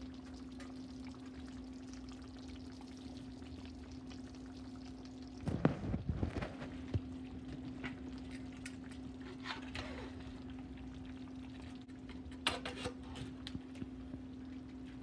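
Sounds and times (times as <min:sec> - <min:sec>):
steady low hum: 0:00.0 - 0:15.0
stew simmering with pops: 0:00.0 - 0:15.0
scraping in pot: 0:12.5 - 0:13.3.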